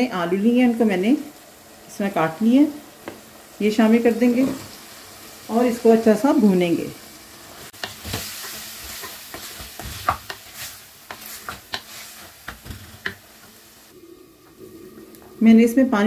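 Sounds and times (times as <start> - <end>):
meat and potatoes sizzling: 0.0 - 16.0
wooden spoon scraping clay pot: 7.6 - 13.5.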